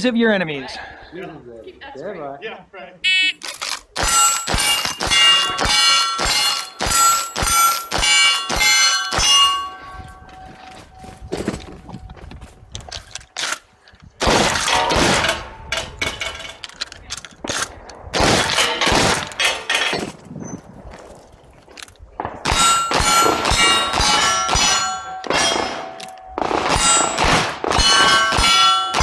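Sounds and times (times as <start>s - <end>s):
steel plate ringing: 4.0s - 10.6s, 22.5s - 29.0s
shotgun blasts: 14.2s - 15.6s, 17.4s - 19.6s, 22.2s - 29.0s.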